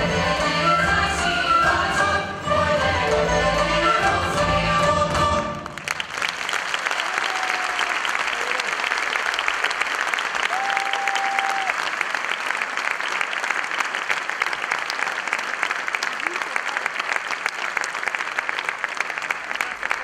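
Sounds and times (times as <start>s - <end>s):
folk group singing: 0.0s - 5.8s
audience applause: 5.4s - 20.0s.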